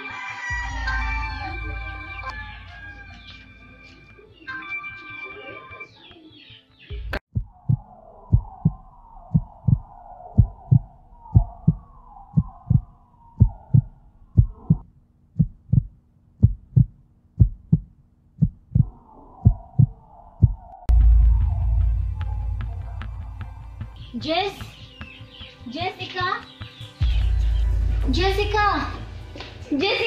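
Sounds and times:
heartbeat thumps: 7.3 - 26.0.

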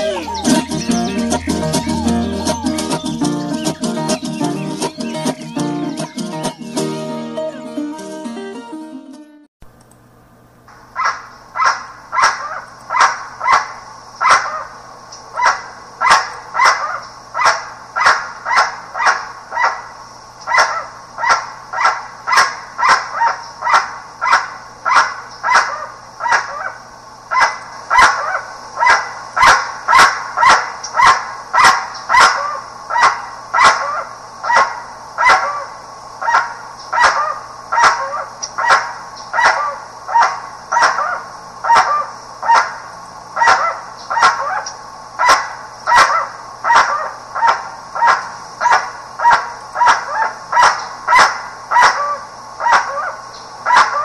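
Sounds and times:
bird honking calls: 0.0 - 6.7.

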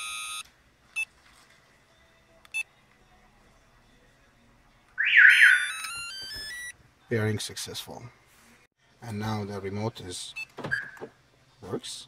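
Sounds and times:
loud warbling chirp: 5.0 - 5.9
alarm remote electronic beeps: 5.0 - 6.7
stepped electronic tones: 5.0 - 6.7.

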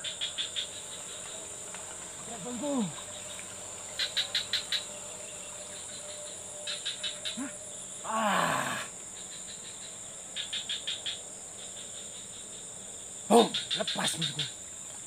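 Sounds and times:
quick insect ticks: 0.0 - 4.9, 5.7 - 7.5, 9.2 - 12.6, 13.3 - 15.0
insects chirring: 0.0 - 15.0.

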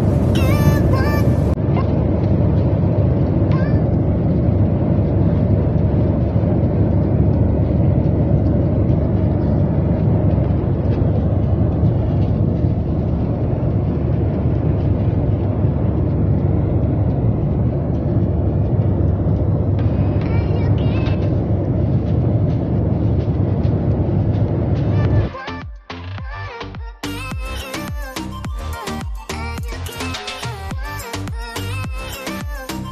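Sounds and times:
jet airliner cabin rumble: 0.0 - 25.6.

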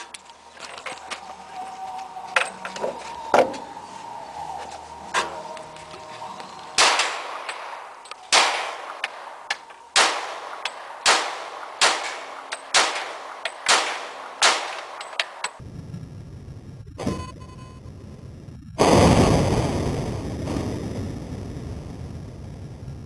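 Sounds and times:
pistol shots: 6.8 - 15.6.

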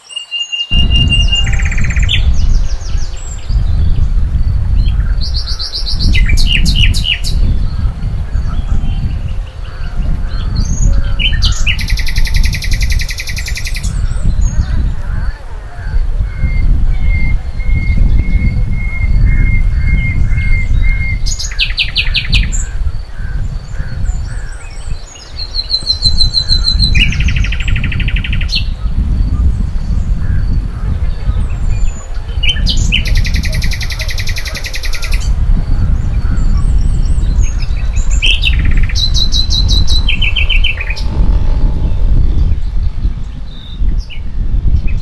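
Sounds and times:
birds trilling: 0.0 - 45.0
steady low rumble: 0.7 - 13.2, 35.1 - 45.0.

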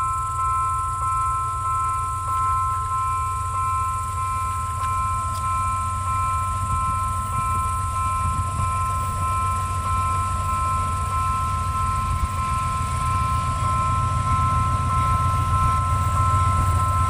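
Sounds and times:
diesel locomotive rumble: 0.0 - 17.0.

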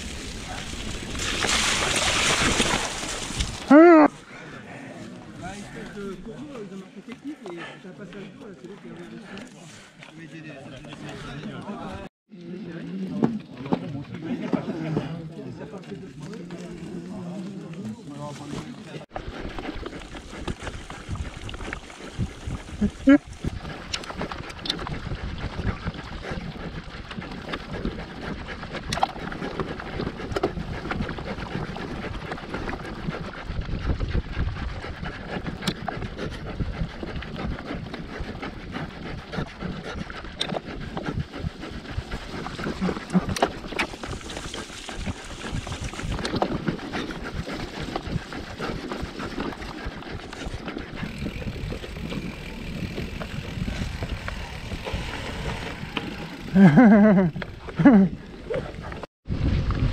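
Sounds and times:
mountain bike rumbling and rattling: 0.0 - 4.5, 16.0 - 59.9
wind buffeting microphone: 19.4 - 29.0, 29.6 - 59.9.

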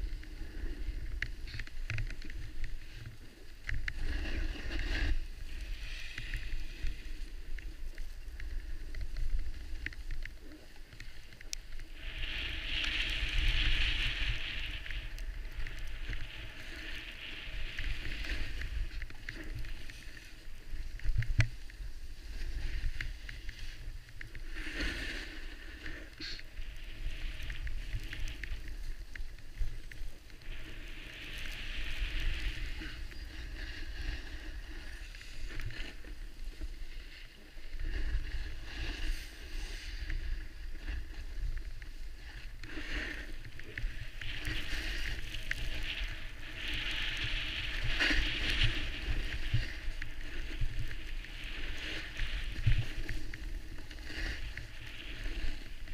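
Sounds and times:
skis sliding over snow: 0.0 - 55.9
wind rumble on microphone: 0.0 - 55.9.

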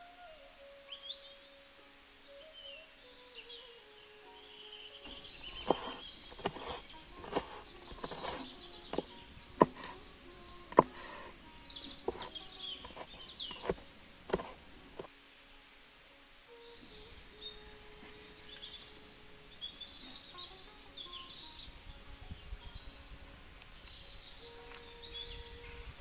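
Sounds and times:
birds chirping: 0.0 - 15.1, 16.5 - 26.0
knife chopping on wooden board: 5.6 - 10.0, 10.7 - 11.3, 12.1 - 15.1.

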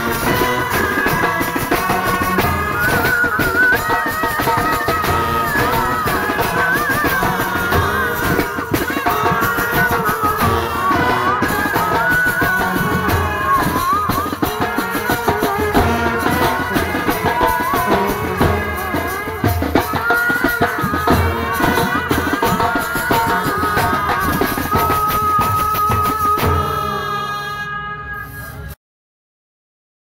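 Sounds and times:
brass band melody: 0.0 - 3.3, 26.4 - 28.6
marching drum beating: 0.0 - 27.0.

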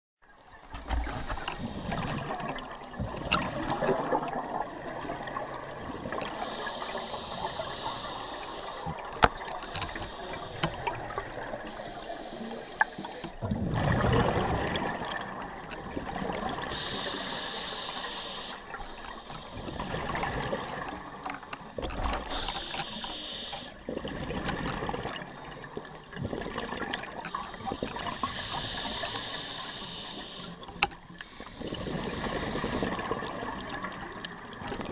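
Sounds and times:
regulator hissing inhale: 0.6 - 2.2, 6.3 - 9.0, 9.6 - 11.0, 11.6 - 13.4, 16.7 - 20.0, 20.9 - 23.8, 27.2 - 32.9.

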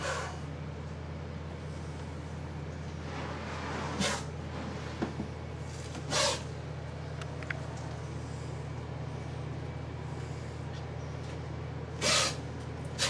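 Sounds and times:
low room hum: 0.0 - 13.0
plastic tub sliding scrapes: 3.0 - 5.3.

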